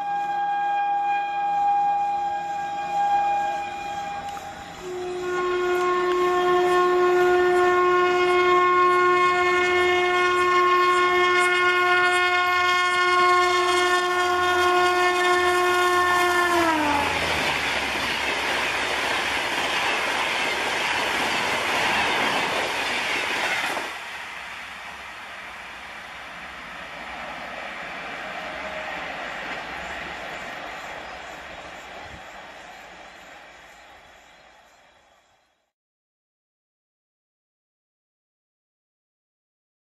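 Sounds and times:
train horn long blast: 0.0s - 18.0s, 27.9s - 30.5s
train coaches rushing and clattering: 15.4s - 35.0s.

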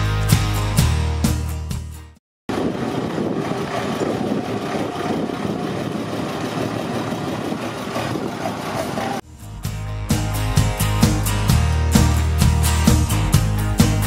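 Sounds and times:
diesel engine idling: 2.5s - 9.4s.

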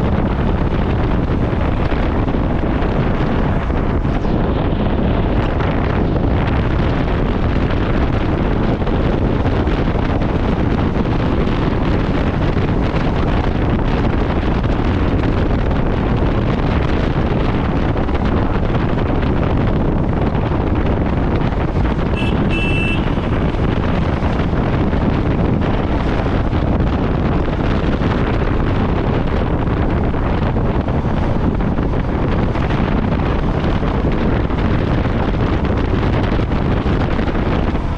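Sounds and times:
motorcycle running: 0.0s - 37.9s
wind buffeting microphone: 0.0s - 37.9s
short high-pitched beep: 22.2s - 23.1s.

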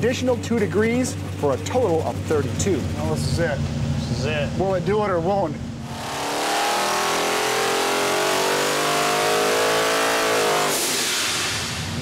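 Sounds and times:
engine revving under load: 5.6s - 12.0s
loud rush of vented air: 10.7s - 12.0s.

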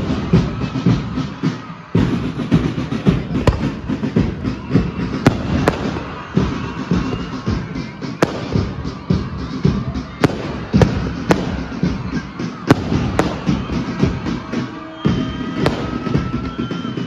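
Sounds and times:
background music: 0.0s - 17.0s
fireworks bangs and crackling: 0.0s - 17.0s.

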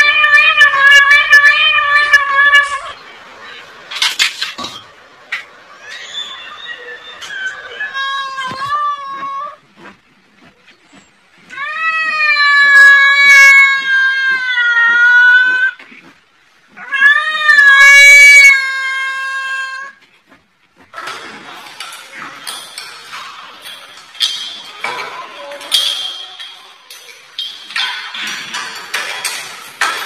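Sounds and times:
cat yowling: 0.0s - 3.0s, 5.8s - 9.6s, 11.5s - 15.8s, 16.8s - 20.0s
rustling and clattering: 3.8s - 5.6s, 19.5s - 30.0s.

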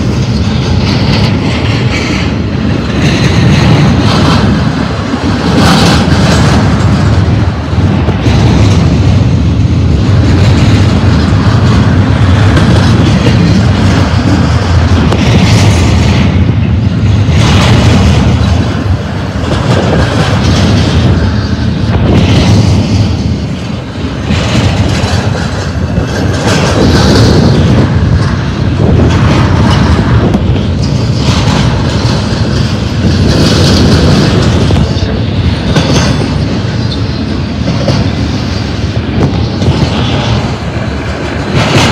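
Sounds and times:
train wheels clattering: 0.0s - 41.9s
train wheels rumbling on rail: 0.0s - 41.9s.

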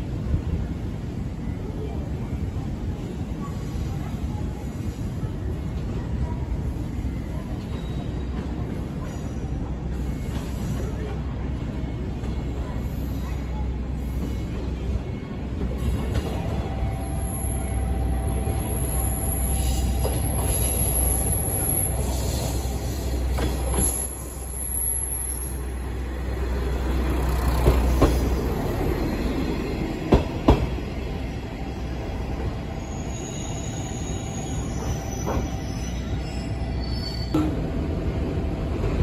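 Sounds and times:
train rumbling past: 0.0s - 39.0s.

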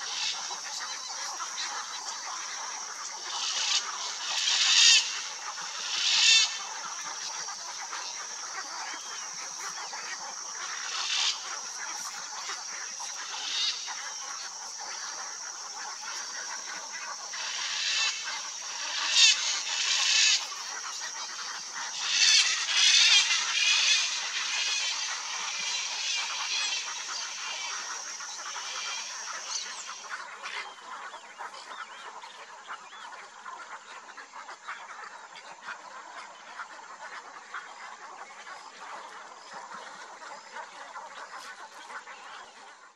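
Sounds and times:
macaws squawking: 0.0s - 0.7s, 1.4s - 30.1s.

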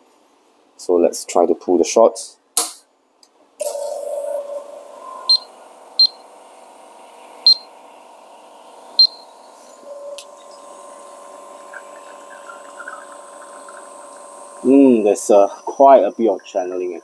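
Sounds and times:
espresso machine pump humming: 3.6s - 17.0s
short high beeps: 5.3s - 6.2s, 7.5s - 7.7s, 9.0s - 10.2s.

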